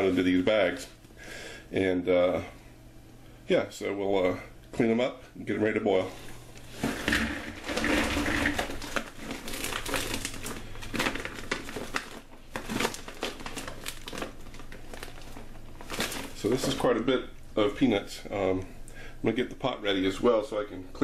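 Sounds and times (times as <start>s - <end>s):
bag crinkling: 6.7s - 16.9s
peanuts rattling into plastic bowl: 6.8s - 13.7s.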